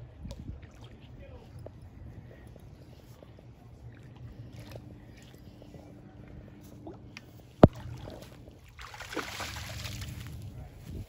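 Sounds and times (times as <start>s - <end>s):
fish splashing at water surface: 7.6s - 10.4s.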